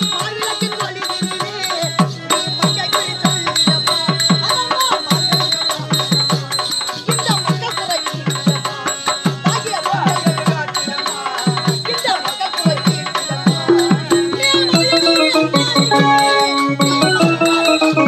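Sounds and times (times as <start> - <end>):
hand drum fast strokes: 11.4 - 18.0
high ringing tone: 13.5 - 18.0
melody line: 13.7 - 18.0.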